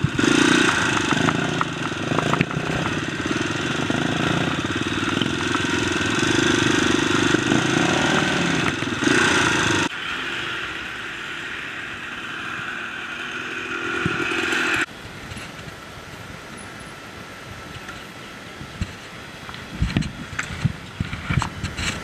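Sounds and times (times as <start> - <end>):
dirt bike engine running: 0.0 - 14.9.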